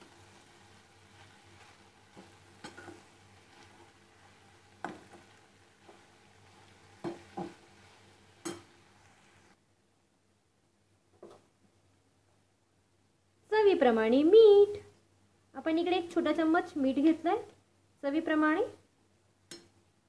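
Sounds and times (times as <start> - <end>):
faint sizzle: 0.0 - 20.0
steel spoon clinking against pan: 2.2 - 3.1, 8.4 - 8.8.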